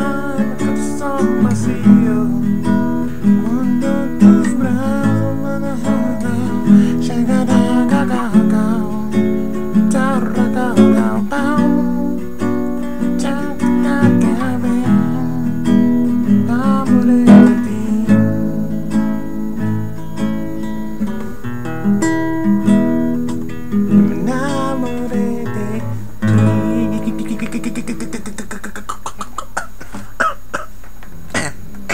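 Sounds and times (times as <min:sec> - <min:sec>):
man humming: 0:00.0 - 0:12.3, 0:12.9 - 0:18.2, 0:23.9 - 0:30.0
classical guitar strumming: 0:00.0 - 0:31.9.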